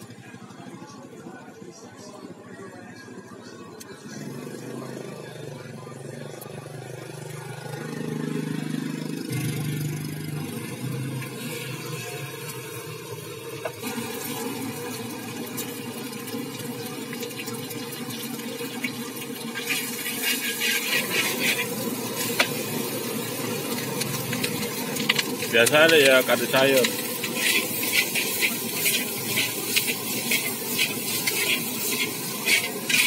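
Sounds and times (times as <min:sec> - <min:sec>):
oil sizzling in a wok: 0:07.0 - 0:33.0.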